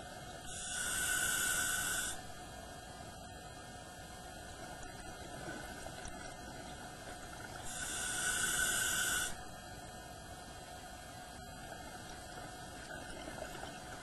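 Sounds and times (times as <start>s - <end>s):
underwater hum: 0.0s - 14.0s
scuba regulator hissing: 0.5s - 2.2s, 7.7s - 9.4s.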